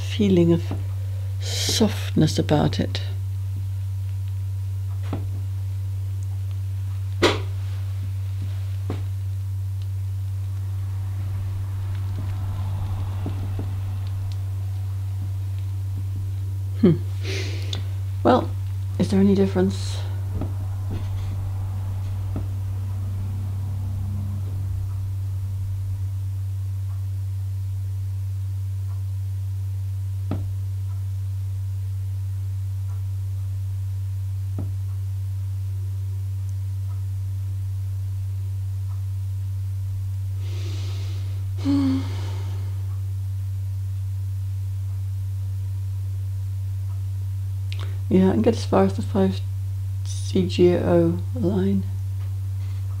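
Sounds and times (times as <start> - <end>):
steady low hum: 0.0 - 53.0
woman breathing and sighing: 40.4 - 42.9.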